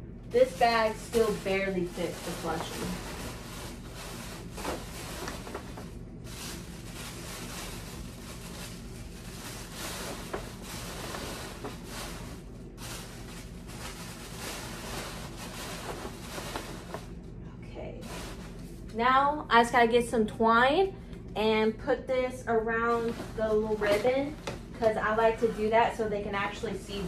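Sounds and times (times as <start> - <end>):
tissue paper and gift bag rustling: 0.4 - 17.1, 18.0 - 18.8, 22.9 - 24.4.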